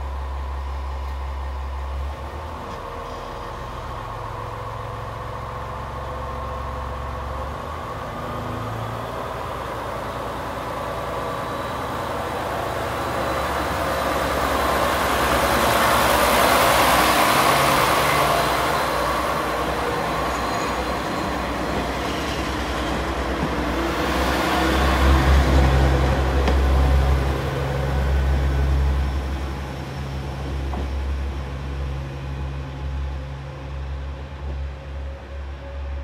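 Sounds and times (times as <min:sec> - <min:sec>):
diesel railcar engine running: 0:00.0 - 0:36.0
train rolling noise: 0:00.0 - 0:36.0.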